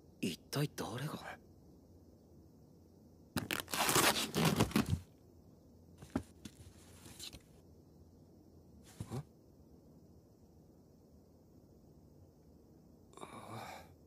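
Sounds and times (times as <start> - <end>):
cardboard flaps scraping and rustling: 3.4 - 5.0
packing tape ripping: 3.4 - 5.0.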